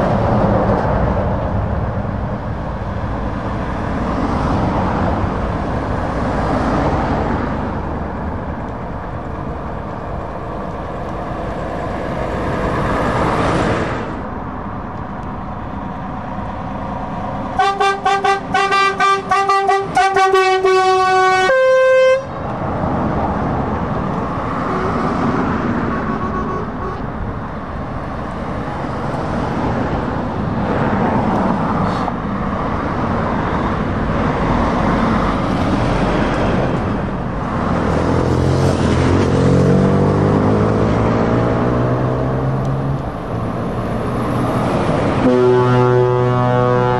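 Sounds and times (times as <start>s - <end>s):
traffic driving past: 0.0s - 46.9s
truck horn toots: 17.6s - 22.4s, 25.8s - 27.1s, 45.2s - 46.9s.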